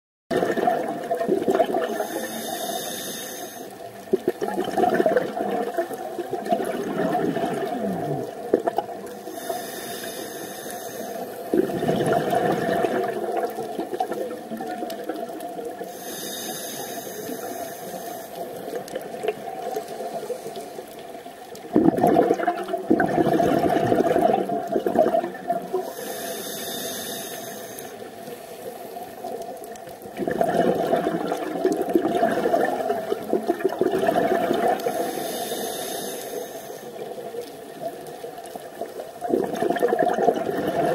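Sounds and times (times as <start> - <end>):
bubbling exhalations underwater: 0.3 - 2.2, 4.1 - 9.2, 11.5 - 15.9, 21.6 - 25.9, 30.0 - 35.1, 38.8 - 40.9
hissing regulator inhale: 1.9 - 3.8, 9.2 - 11.6, 15.8 - 18.8, 19.8 - 20.9, 25.8 - 29.2, 34.8 - 37.1.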